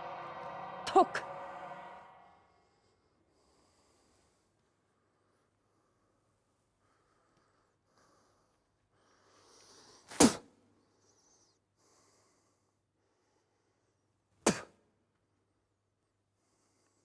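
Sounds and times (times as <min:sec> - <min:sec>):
drum strikes: 0:00.0 - 0:02.4
soft rising rush: 0:00.0 - 0:02.6.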